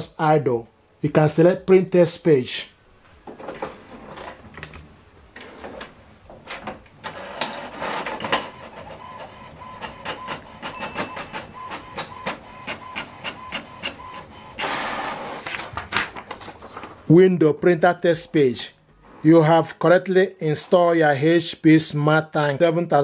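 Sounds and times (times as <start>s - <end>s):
printer clicks and mechanical strokes: 7.0s - 15.4s
printer paper rush: 7.0s - 16.8s.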